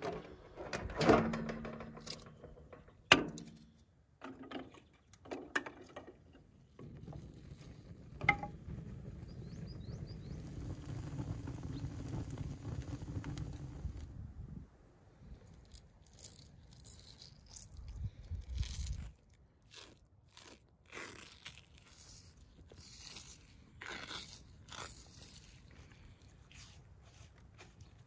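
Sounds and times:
wood fire crackling: 6.8s - 14.1s
logs knocking into metal trough: 8.2s - 8.6s.

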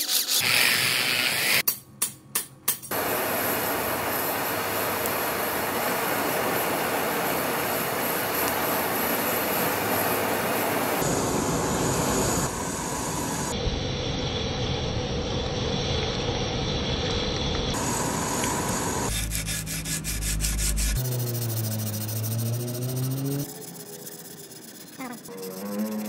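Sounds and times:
forge fire with rushing air: 2.9s - 19.2s.

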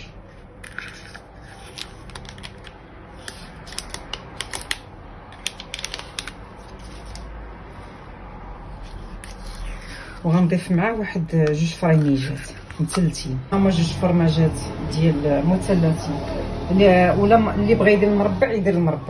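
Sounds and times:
metal spoon scraping plastic cup: 0.6s - 4.1s.

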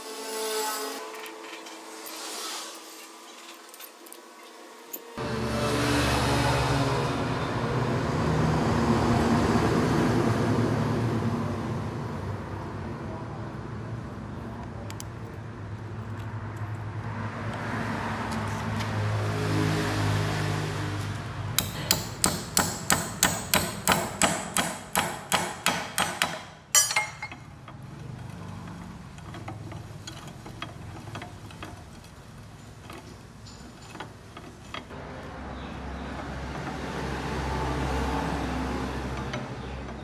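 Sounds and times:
hammer striking metal: 21.6s - 27.5s.

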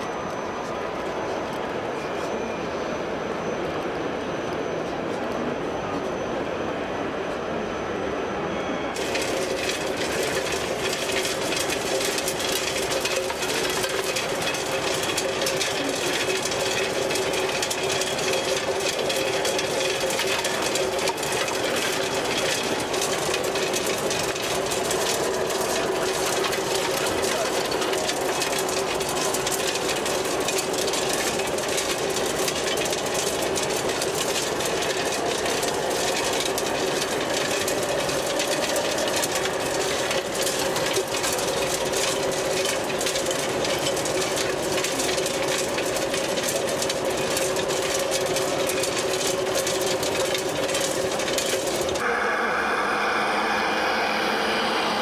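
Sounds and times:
soil and grit rattling on screen: 9.0s - 52.0s
whine of small motors and hydraulics: 52.0s - 55.0s.

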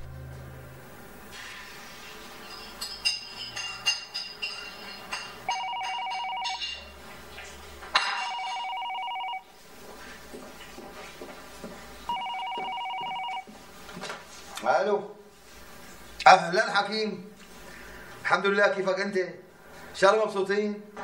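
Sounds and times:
electronic telephone ringing: 5.5s - 6.9s, 8.0s - 9.5s, 12.1s - 13.5s.

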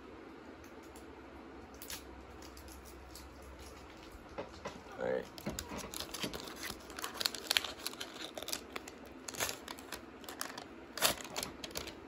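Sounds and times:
foil wrapper crinkling: 5.3s - 12.0s.

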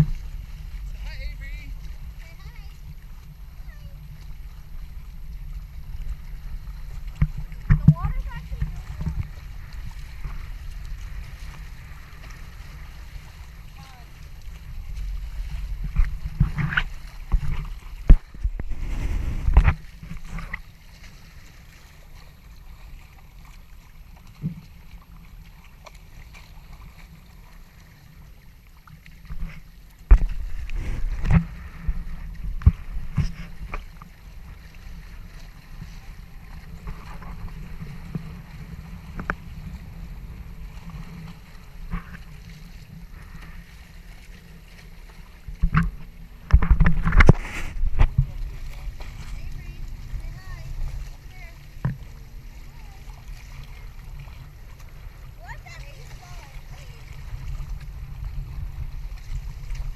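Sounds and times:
wind buffeting microphone: 0.0s - 21.0s, 45.3s - 59.9s
water rushing along hulls: 0.0s - 59.9s
waves slapping against hull: 0.0s - 59.9s.

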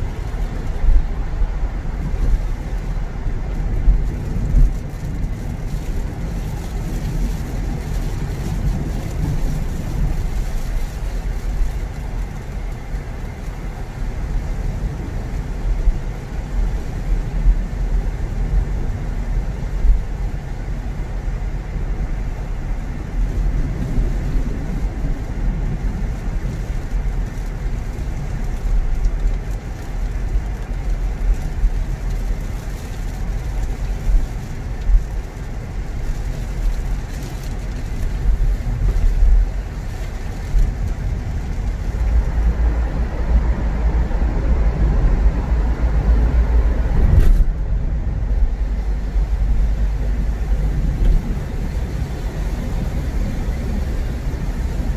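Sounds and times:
car engine and tyre rumble: 0.0s - 54.9s.

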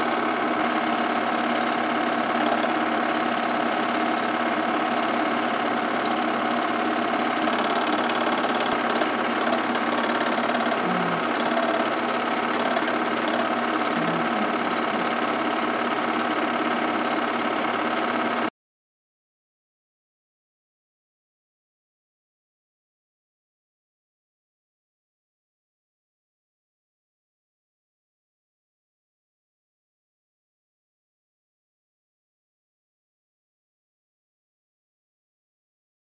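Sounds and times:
film projector whirring and clattering: 0.0s - 18.5s.

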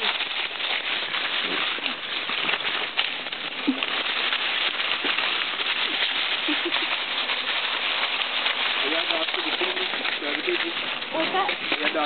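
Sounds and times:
dogs growling: 0.0s - 9.0s
dry leaves crackling and rustling: 0.0s - 12.0s.

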